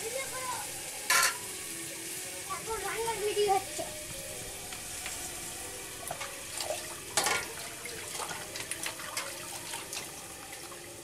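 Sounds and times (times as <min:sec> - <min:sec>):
steady hiss: 0:00.0 - 0:08.7
water splashing in a steel pot: 0:04.4 - 0:11.0.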